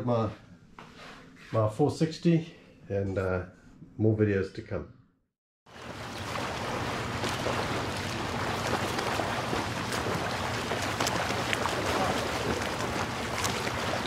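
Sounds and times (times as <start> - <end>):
rushing water: 5.7 - 14.0.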